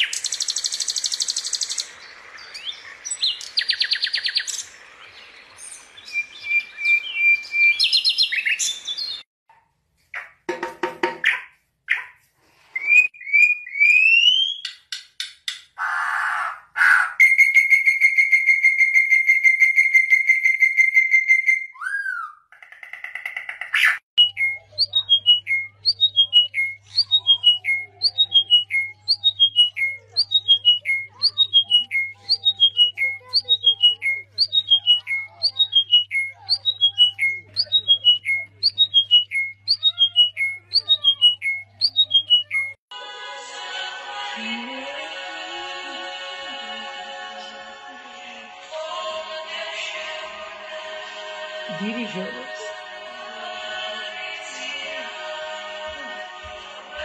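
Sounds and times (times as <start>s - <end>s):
bird whistling: 6.0s - 9.2s, 16.8s - 22.4s, 24.2s - 42.8s.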